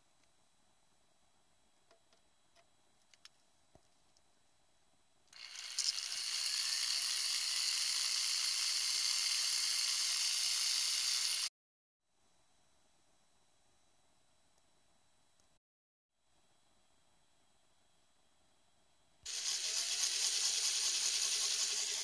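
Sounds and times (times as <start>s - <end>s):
drill grinding into glass: 5.4s - 11.5s, 19.3s - 22.0s.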